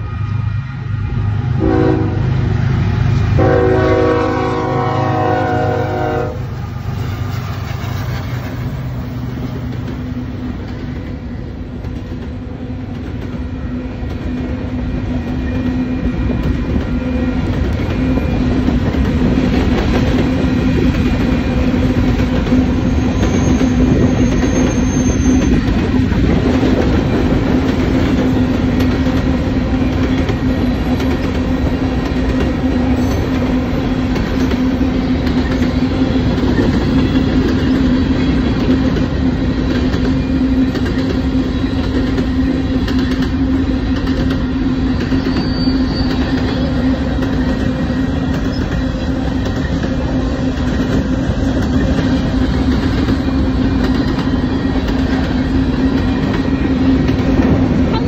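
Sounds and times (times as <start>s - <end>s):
freight train wheels rumbling: 0.0s - 58.0s
high wheel squeal: 22.6s - 25.9s, 32.8s - 33.6s, 44.8s - 50.2s.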